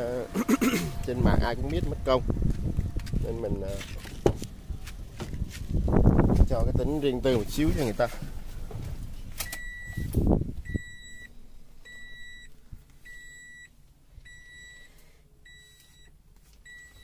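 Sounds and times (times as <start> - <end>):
car warning chime beeping: 9.4 - 17.0.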